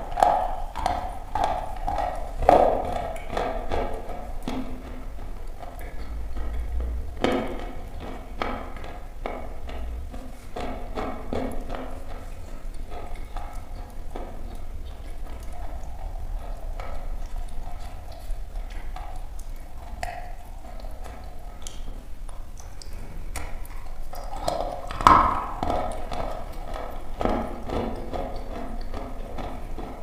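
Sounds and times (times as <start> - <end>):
chalk being chewed crunching: 0.0 - 30.0.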